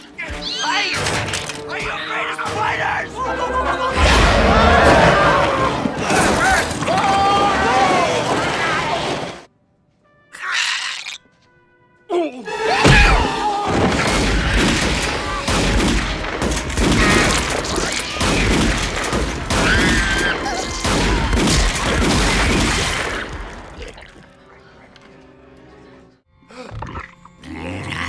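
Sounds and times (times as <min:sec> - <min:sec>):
gunfire-like cracks and crashes: 0:04.0 - 0:09.5, 0:12.8 - 0:23.8.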